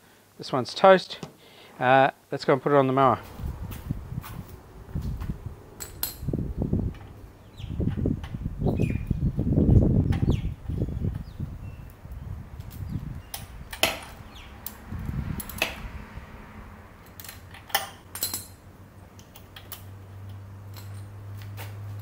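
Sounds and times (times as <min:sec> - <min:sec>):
metallic clicks and taps: 0:19.1 - 0:21.6.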